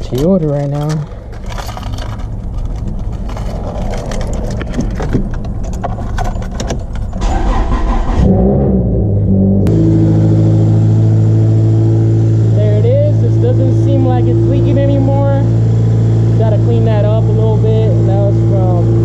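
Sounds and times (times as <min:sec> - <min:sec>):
car keys jangling: 0:00.0 - 0:07.6
car engine cranking and idling: 0:00.0 - 0:19.0.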